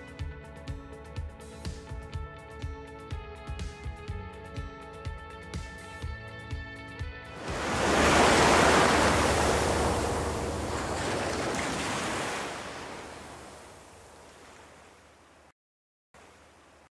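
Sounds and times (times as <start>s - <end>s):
ocean surf rush: 7.4s - 15.1s.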